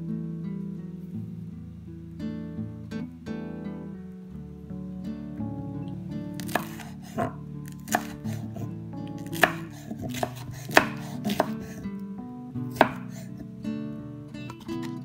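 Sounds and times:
knife chopping on wooden board: 0:06.4 - 0:08.5, 0:09.2 - 0:11.8, 0:12.7 - 0:13.2.

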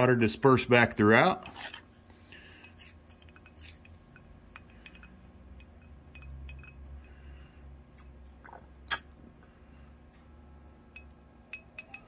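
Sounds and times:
glassware clinking: 0:02.6 - 0:06.8, 0:10.9 - 0:12.0.

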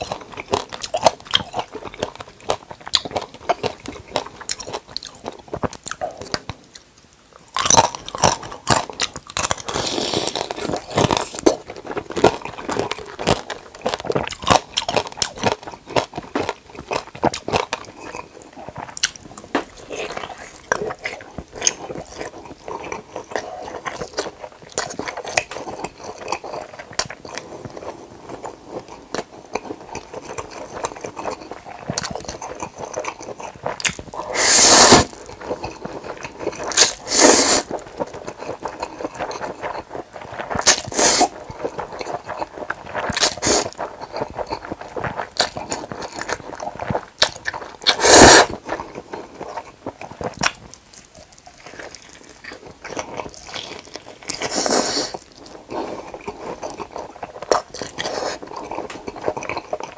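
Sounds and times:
close chewing with clicks: 0:00.0 - 0:59.9
loud noodle slurps: 0:34.2 - 0:35.2, 0:36.6 - 0:37.8, 0:40.6 - 0:41.4, 0:43.0 - 0:43.8, 0:47.8 - 0:48.6, 0:54.4 - 0:55.2.

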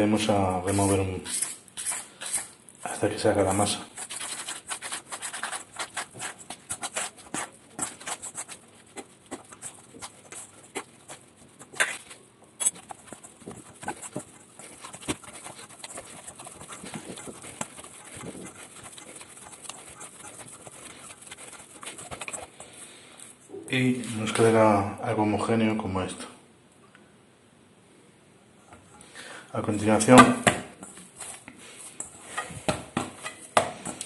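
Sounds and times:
hands kneading dough in metal bowl: 0:00.0 - 0:23.0.

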